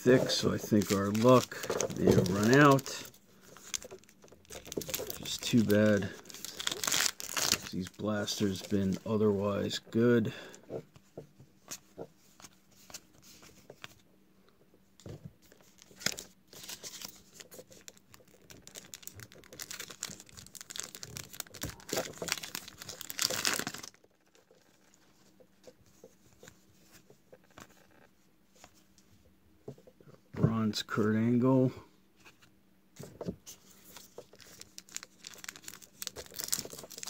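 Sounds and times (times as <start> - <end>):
faint handling of cards: 0.0 - 37.0
foil wrapper tearing and crinkling: 0.1 - 8.9, 15.7 - 25.0, 34.0 - 37.0.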